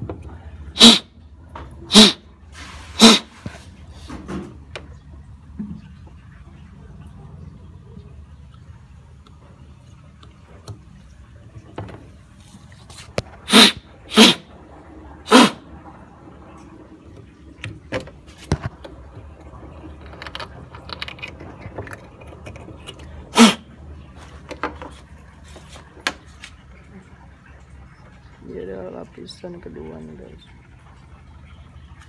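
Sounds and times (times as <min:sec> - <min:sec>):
hissing puffs of air: 0:00.7 - 0:01.1, 0:01.9 - 0:04.2, 0:13.4 - 0:14.5.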